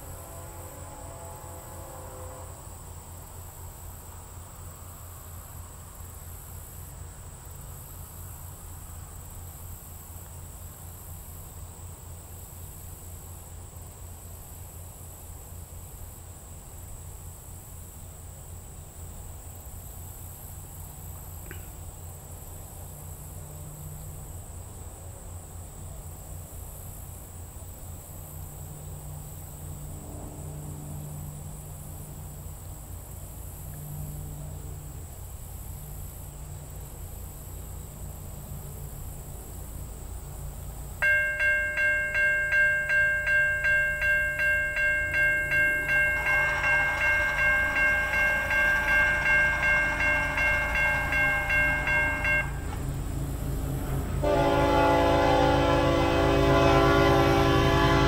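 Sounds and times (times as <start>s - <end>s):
pulsing insect trill: 35.0s - 54.9s.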